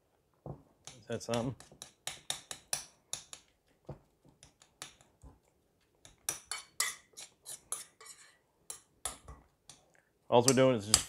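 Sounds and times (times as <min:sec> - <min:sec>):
utensil scraping mixing bowl: 0:06.5 - 0:08.4.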